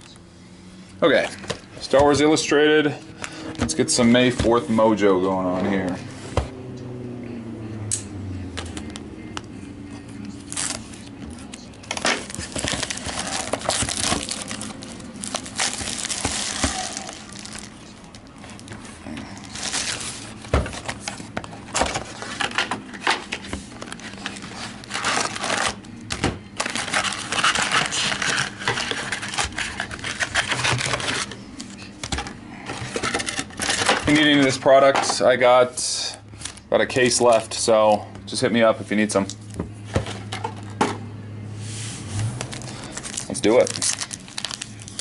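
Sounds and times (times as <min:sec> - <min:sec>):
plastic shrink-wrap crinkling: 0:10.4 - 0:21.2, 0:23.3 - 0:25.9, 0:26.6 - 0:32.1, 0:32.9 - 0:34.6, 0:42.4 - 0:45.0
foil packs rustling: 0:10.4 - 0:34.9, 0:35.9 - 0:37.7, 0:42.2 - 0:45.0.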